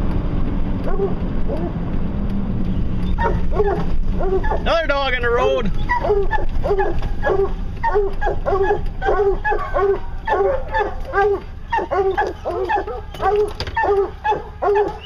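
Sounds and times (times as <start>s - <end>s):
dogs barking rapidly: 0.8s - 1.8s, 3.1s - 4.8s, 5.7s - 15.0s.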